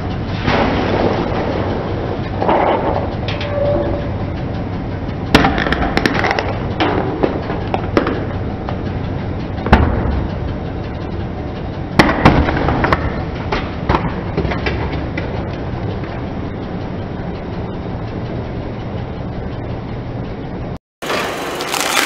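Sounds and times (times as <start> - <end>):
low rumble: 0.0 - 20.8
cans crushed under car tyre: 21.0 - 22.0.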